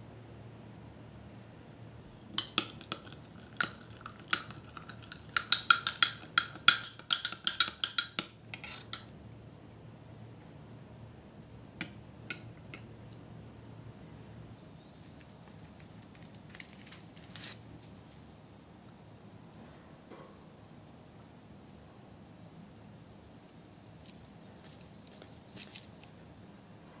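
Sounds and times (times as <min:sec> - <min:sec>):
spoon clinking against glass: 0:02.4 - 0:08.2
spoon tapping glass: 0:02.4 - 0:08.4.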